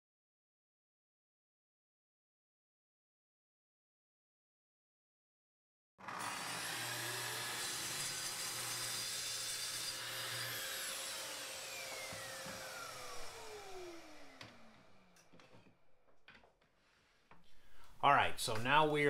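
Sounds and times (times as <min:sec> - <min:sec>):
dust extractor running: 0:06.0 - 0:07.6, 0:10.0 - 0:15.1
saw motor spinning down: 0:06.0 - 0:15.3
circular saw cutting board: 0:06.0 - 0:15.8.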